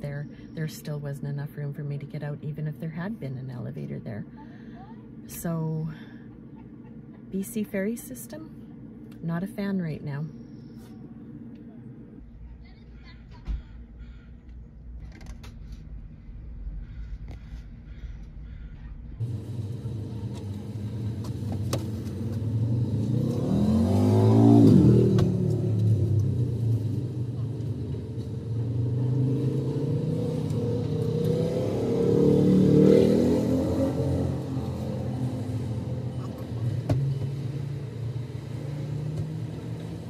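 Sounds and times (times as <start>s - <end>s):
car engines driving past: 16.1s - 40.0s.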